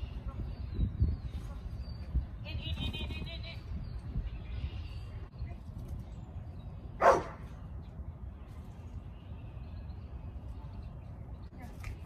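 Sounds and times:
dog barking: 7.0s - 7.4s.

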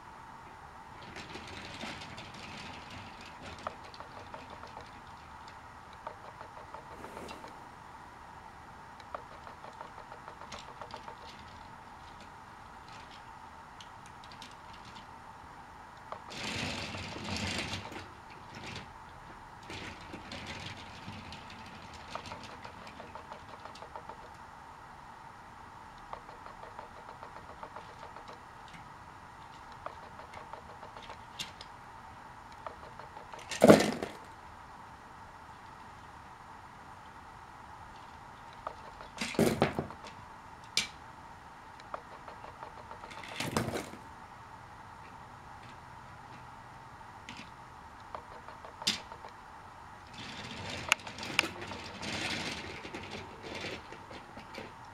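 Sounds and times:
train rattling on plastic track: 0.9s - 7.6s, 9.1s - 15.2s, 16.1s - 24.4s, 26.1s - 31.7s, 32.6s - 34.4s, 38.0s - 41.0s, 41.9s - 44.0s, 48.2s - 49.3s, 50.1s - 54.8s.

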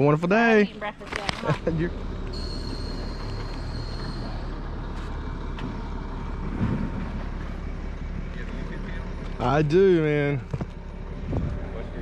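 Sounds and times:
truck engine running: 0.0s - 12.0s
thin high whine: 2.2s - 5.2s.

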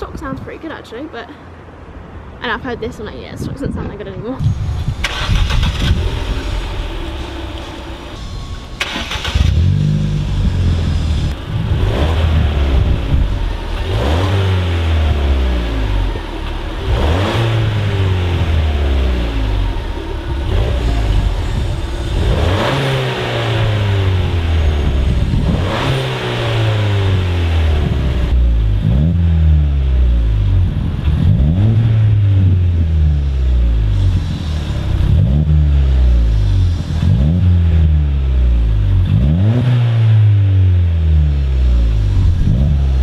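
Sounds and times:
car engine revving: 4.4s - 43.0s.

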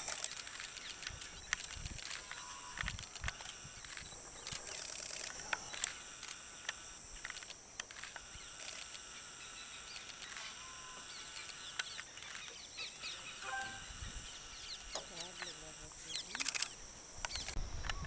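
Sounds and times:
steady high-pitched hiss: 0.0s - 18.0s
birds chirping and calling: 8.2s - 18.0s.

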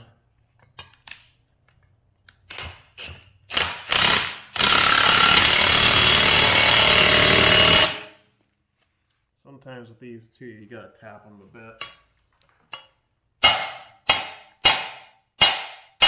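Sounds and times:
impact gun hammering: 13.4s - 16.0s.

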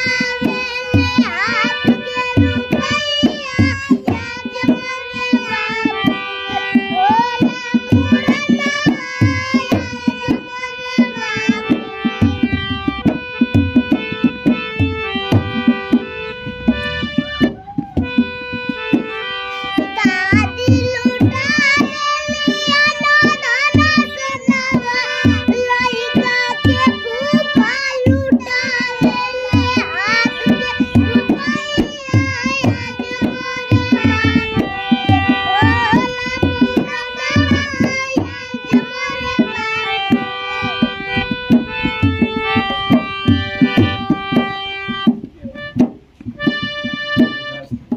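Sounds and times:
children singing: 0.0s - 12.1s, 19.5s - 41.5s
hand drum beat: 0.0s - 19.1s, 19.8s - 47.9s
harmonium: 0.0s - 47.9s.

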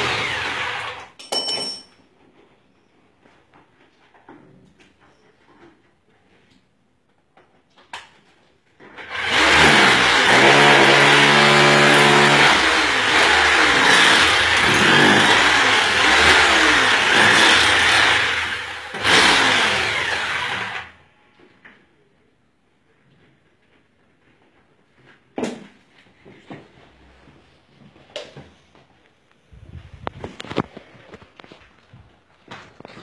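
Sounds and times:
power tool motor on tiled wall: 0.0s - 1.2s, 8.8s - 21.0s.

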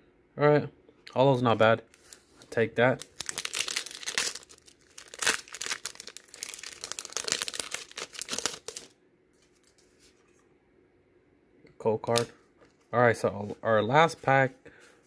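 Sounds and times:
foil wrapper crinkling and tearing: 2.0s - 9.0s.

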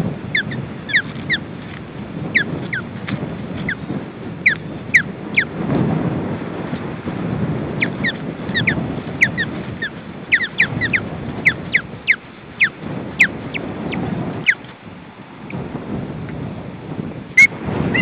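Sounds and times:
wind rumble on microphone: 0.0s - 18.0s
ospreys whistling calls: 0.4s - 1.4s, 7.8s - 13.6s, 17.4s - 18.0s.

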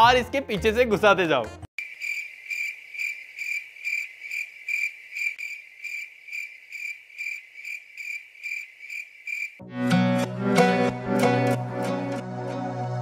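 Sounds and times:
cricket chirping: 1.8s - 9.6s.

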